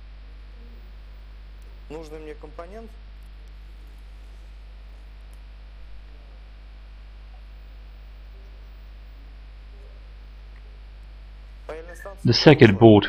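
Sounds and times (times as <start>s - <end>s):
low mains hum: 0.0s - 13.0s
faint handling sounds: 3.2s - 5.5s.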